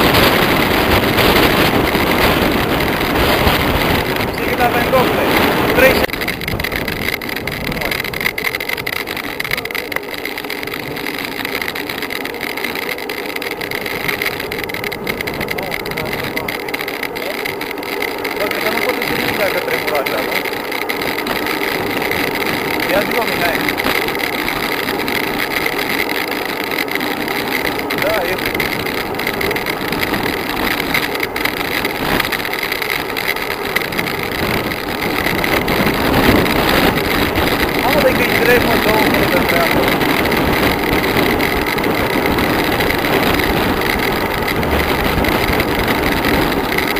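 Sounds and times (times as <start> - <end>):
wind rushing: 0.0 - 8.8
road noise: 0.0 - 46.9
tyre noise on asphalt: 0.0 - 46.9
wind buffeting microphone: 0.0 - 46.9.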